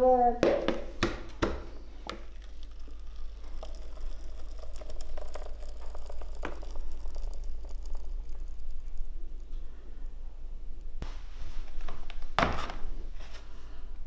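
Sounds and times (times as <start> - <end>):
batter pouring into bowl: 2.1 - 9.8.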